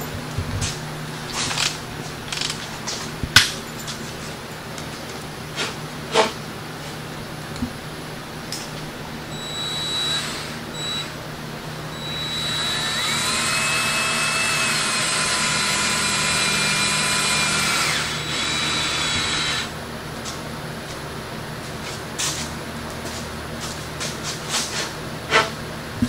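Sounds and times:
cordless drill whine: 9.3s - 11.2s, 11.8s - 19.8s.

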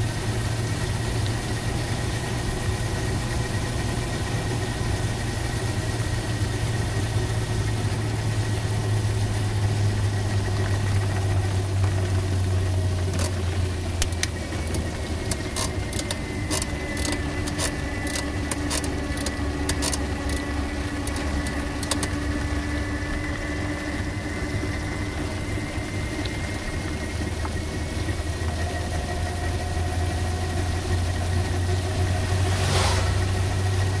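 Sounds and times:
vehicle ride hum: 0.0s - 34.0s
sharp ticks: 14.0s - 22.5s
passing car rush: 30.1s - 34.0s.

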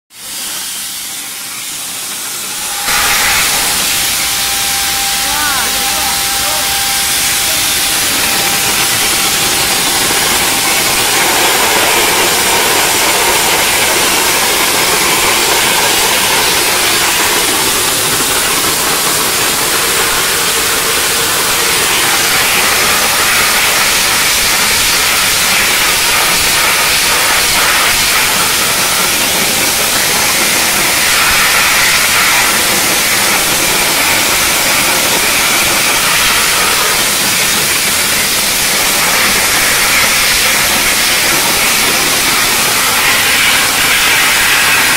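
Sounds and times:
dry ice blaster hissing: 0.1s - 44.9s.

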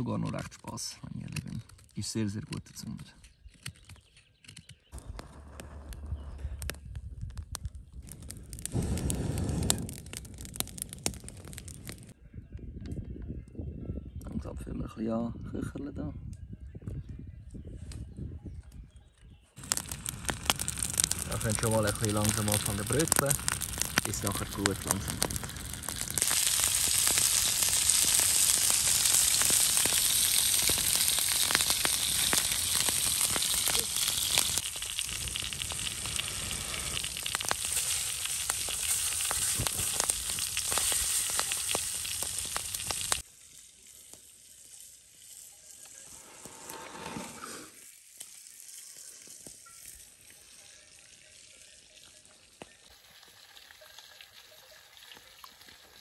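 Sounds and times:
steaks sizzling in a frying pan: 19.6s - 46.0s.

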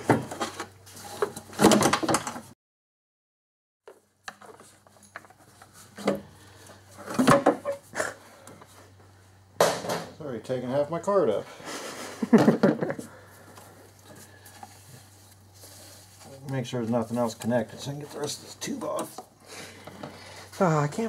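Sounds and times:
plastic parts knocking and rattling: 0.0s - 2.5s.

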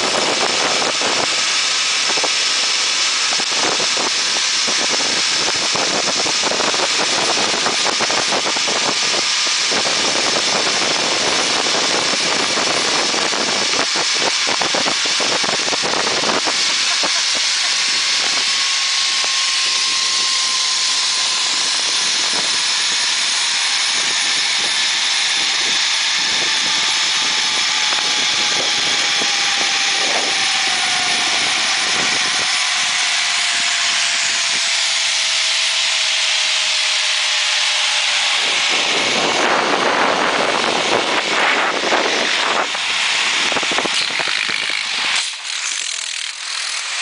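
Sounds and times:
wind on microphone: 0.0s - 45.4s
thin whine falling in pitch: 0.0s - 47.0s
zipline trolley whirring on cable: 0.0s - 47.0s.

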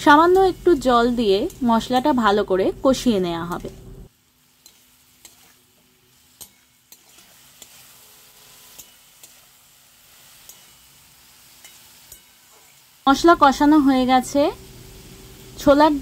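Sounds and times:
frying sizzle: 0.0s - 16.0s
metal spatula scraping a pan: 4.4s - 12.9s
spatula clicking against pan: 10.4s - 10.7s.

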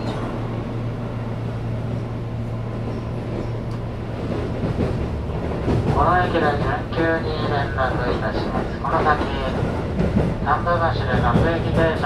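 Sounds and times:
low hum of stopped train: 0.0s - 12.0s.

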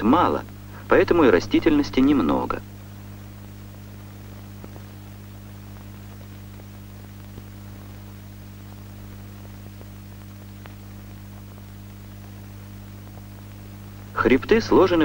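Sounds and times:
electrical hum: 0.0s - 15.0s
faint hiss: 0.0s - 15.0s
faint clicks: 8.8s - 12.4s.

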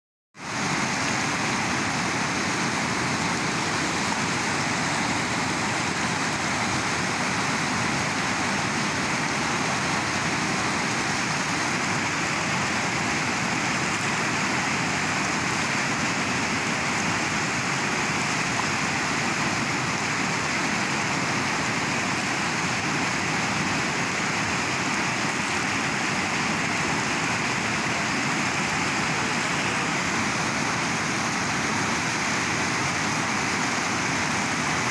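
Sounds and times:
river rushing: 0.4s - 34.9s.

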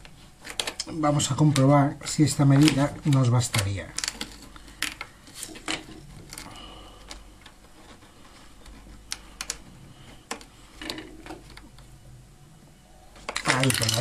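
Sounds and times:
cable clicking on plastic: 9.0s - 9.6s.

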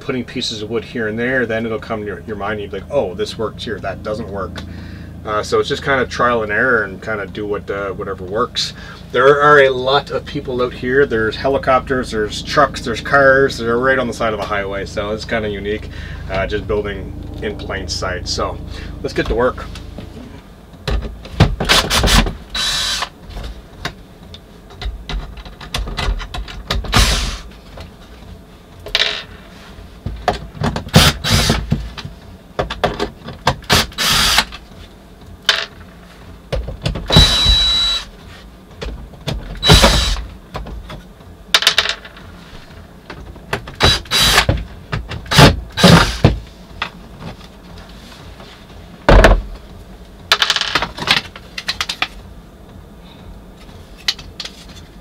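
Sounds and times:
cordless drill bursts: 21.7s - 23.1s, 26.9s - 27.4s, 31.0s - 31.6s, 33.7s - 34.5s, 37.1s - 38.1s, 39.6s - 40.2s, 43.8s - 44.5s.

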